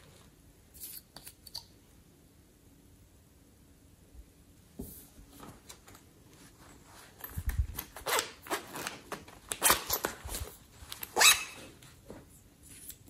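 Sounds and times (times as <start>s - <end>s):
zipper rasping open: 9.6s - 11.6s.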